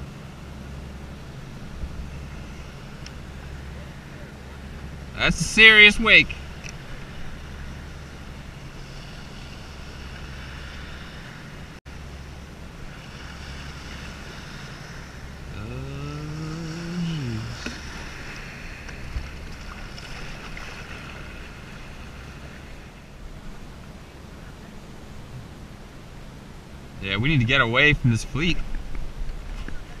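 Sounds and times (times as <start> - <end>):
boat engines droning: 0.0 - 30.0
water sloshing: 12.6 - 23.1.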